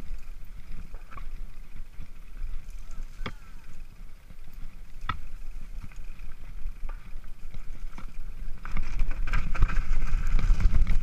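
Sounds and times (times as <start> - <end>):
bike tyre rumble: 0.0 - 11.0
wind on microphone: 0.0 - 11.0
bike knocks and rattles: 4.6 - 11.0.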